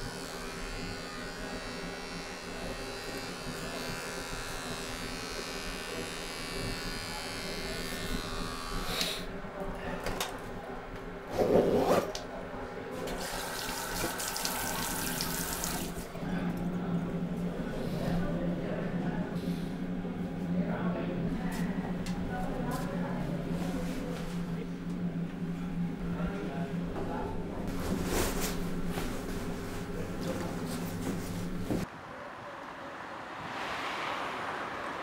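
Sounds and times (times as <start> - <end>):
electric shaver buzzing: 0.0 - 9.3, 13.2 - 16.1
tap water running and splashing: 13.2 - 16.0.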